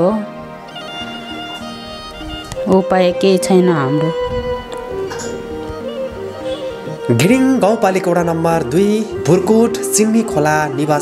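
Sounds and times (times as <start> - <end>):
slow background music: 0.0 - 11.0.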